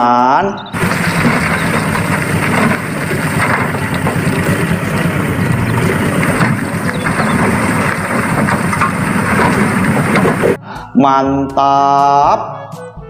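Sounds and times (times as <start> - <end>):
vehicle engine idling: 0.6 - 10.6.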